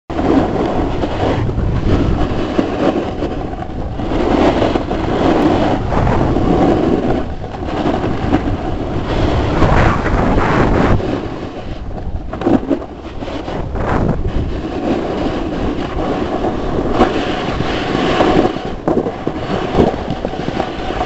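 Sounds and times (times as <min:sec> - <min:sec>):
snowboard scraping over snow: 0:00.1 - 0:21.0
wind buffeting microphone: 0:00.1 - 0:21.0.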